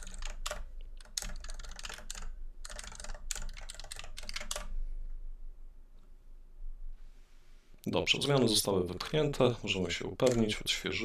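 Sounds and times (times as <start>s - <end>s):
typing on computer keyboard: 0.0s - 4.7s, 10.2s - 10.6s.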